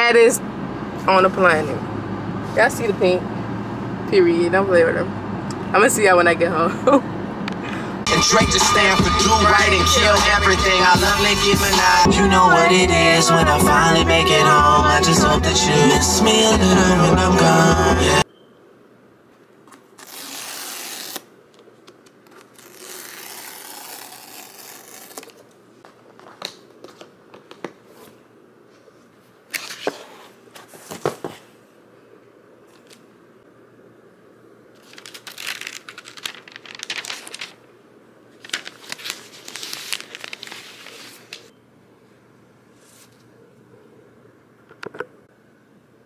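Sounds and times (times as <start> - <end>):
packaging tearing and crinkling: 20.0 - 21.2, 22.4 - 25.4, 34.8 - 37.6, 38.4 - 41.4.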